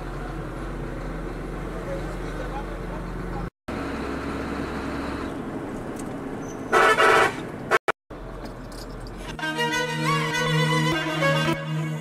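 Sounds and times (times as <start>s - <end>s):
truck engine and road noise: 0.0s - 12.0s
vehicle horn honking: 6.7s - 7.4s.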